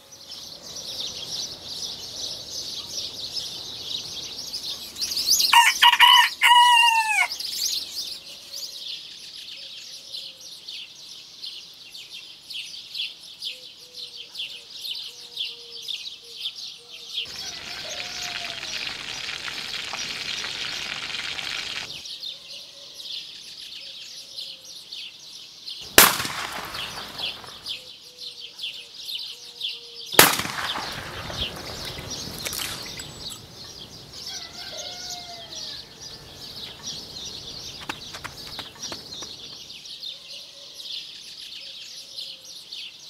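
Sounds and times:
birds chirping: 0.0s - 8.8s, 17.2s - 22.0s, 25.8s - 28.3s, 30.0s - 43.0s
steady hiss: 17.3s - 22.0s
shotgun shots: 25.9s - 27.8s, 30.2s - 33.0s.

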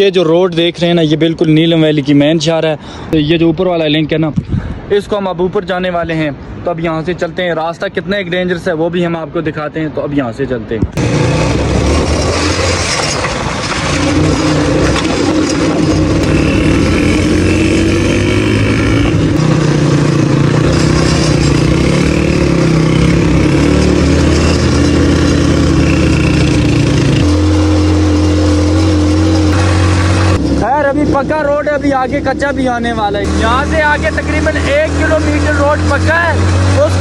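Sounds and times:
small motorcycle engine running: 13.8s - 37.0s.

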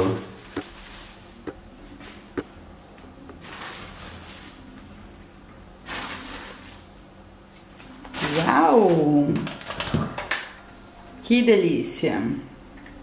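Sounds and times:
plastic bag rustling: 0.4s - 1.4s, 3.4s - 4.8s, 5.8s - 7.0s.

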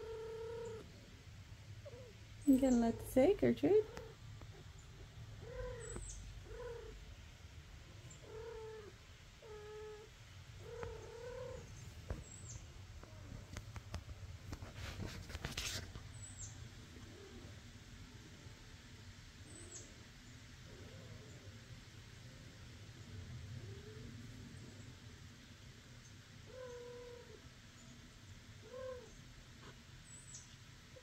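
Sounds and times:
cat yowling: 0.0s - 0.8s, 5.4s - 7.0s, 8.2s - 11.7s, 26.5s - 27.4s, 28.6s - 29.1s
rustling: 10.8s - 16.3s.

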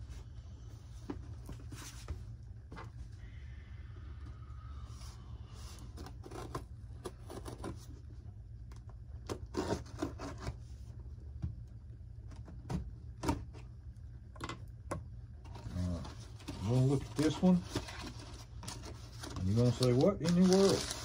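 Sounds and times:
steady low hum: 0.0s - 21.0s
cardboard box being scraped and cut: 9.4s - 10.6s.

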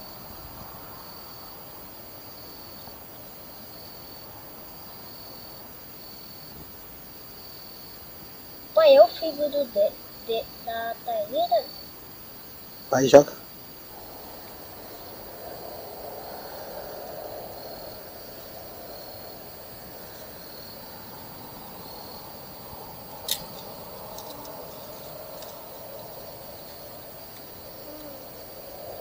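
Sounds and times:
faint high insect tone: 0.0s - 29.0s
chorus of calling animals: 8.8s - 12.0s, 12.9s - 29.0s.

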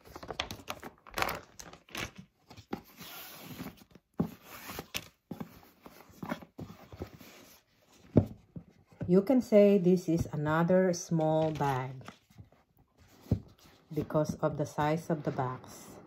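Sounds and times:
plastic bag crinkling: 0.0s - 2.2s.

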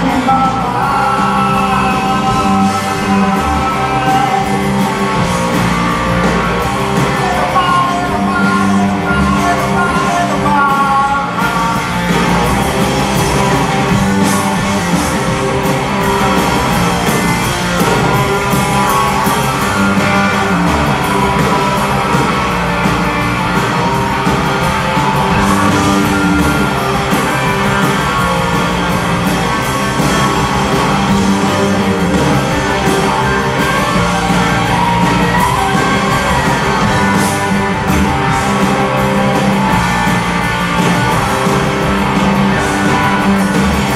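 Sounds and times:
drum kit: 0.0s - 43.9s
electric guitars: 0.0s - 43.9s.

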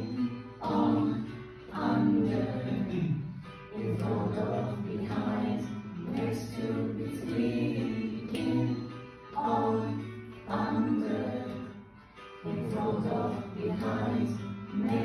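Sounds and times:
children's song over speakers: 0.0s - 15.0s
voices singing: 0.0s - 15.0s.

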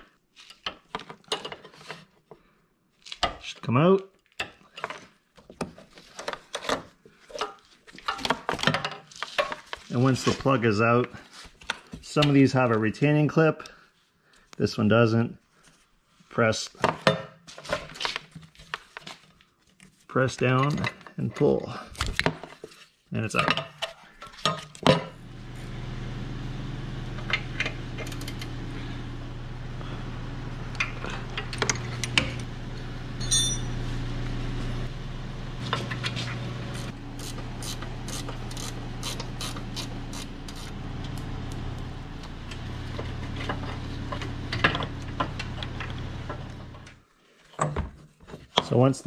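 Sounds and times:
low hum: 25.2s - 46.9s.

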